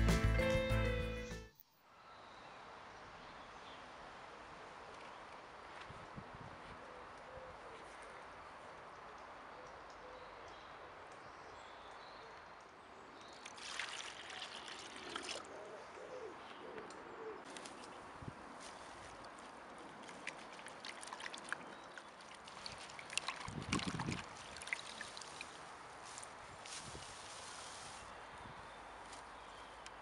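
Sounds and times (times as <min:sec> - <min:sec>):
water dripping: 0:12.6 - 0:15.4, 0:19.2 - 0:25.7
hands splashing herbs in water: 0:19.1 - 0:25.6.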